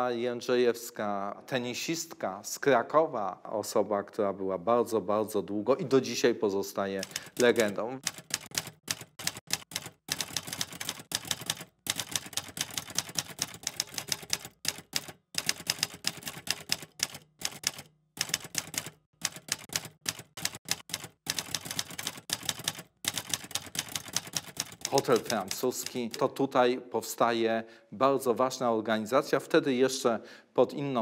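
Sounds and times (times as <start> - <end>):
typewriter key strikes: 7.0 - 26.2.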